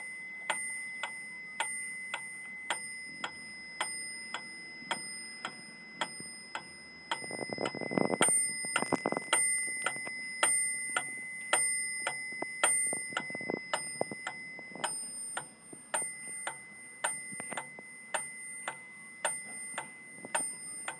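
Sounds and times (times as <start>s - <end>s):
metronome bell ringing: 0.0s - 20.9s
metronome ticking: 0.0s - 20.9s.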